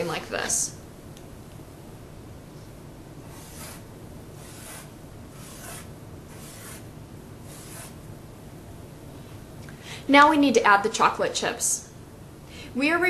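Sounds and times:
pen scratching on paper: 3.3s - 3.8s, 4.4s - 6.9s, 7.5s - 8.0s.

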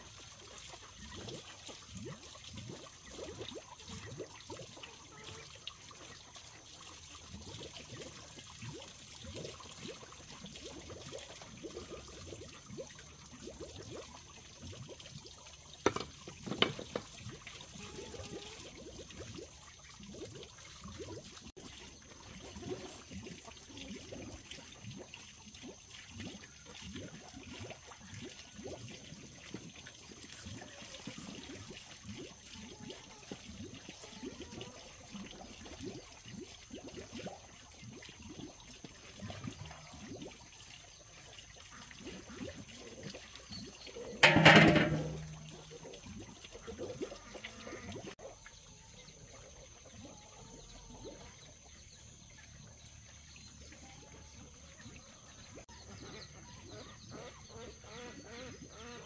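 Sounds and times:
water trickling and splashing: 0.0s - 59.0s
sharp knocks: 44.2s - 45.6s.

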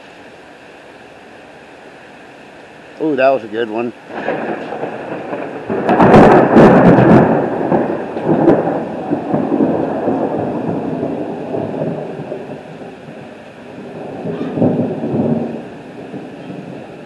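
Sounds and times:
heavy rain falling: 0.0s - 17.0s
thunder crack and rumble: 4.1s - 17.0s.

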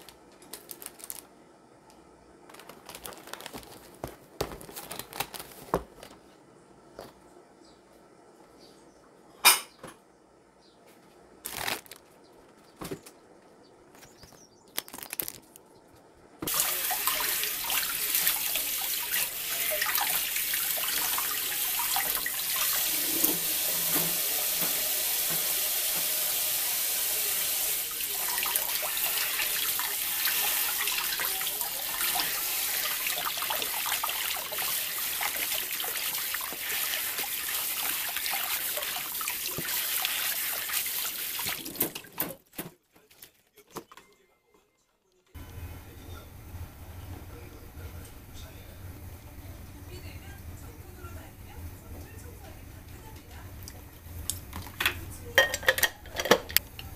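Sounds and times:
tap water running into a sink: 16.4s - 42.1s.

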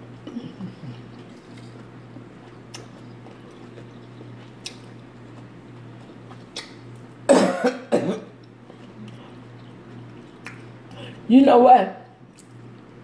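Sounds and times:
steady low hum: 0.0s - 13.0s
woman coughing: 7.3s - 8.3s.

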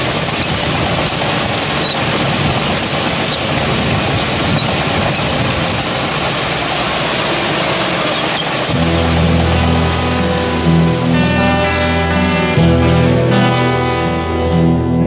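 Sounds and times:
truck driving: 0.0s - 14.8s.

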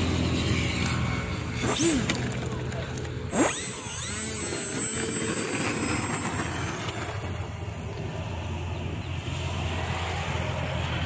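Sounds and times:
model airplane motor whining: 0.0s - 8.8s.

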